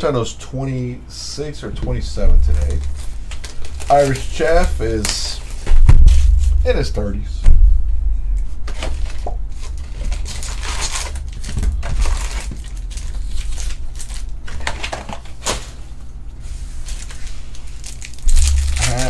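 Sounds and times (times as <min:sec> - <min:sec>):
low steady hum: 0:00.0 - 0:19.0
foil wrappers crinkling: 0:02.6 - 0:06.5, 0:08.7 - 0:15.9, 0:16.6 - 0:19.0.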